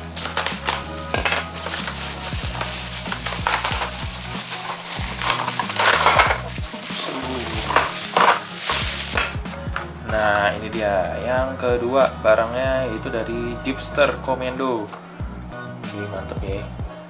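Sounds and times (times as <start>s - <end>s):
bubble wrap crinkling: 0.0s - 10.6s
background music with beat: 0.0s - 17.0s.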